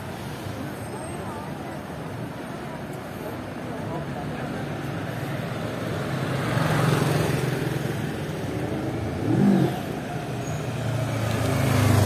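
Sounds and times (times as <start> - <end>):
cars driving past: 4.2 - 12.0.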